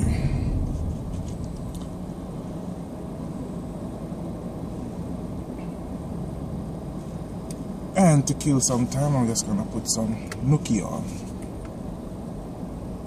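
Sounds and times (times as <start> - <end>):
car engine idling: 0.0 - 6.0.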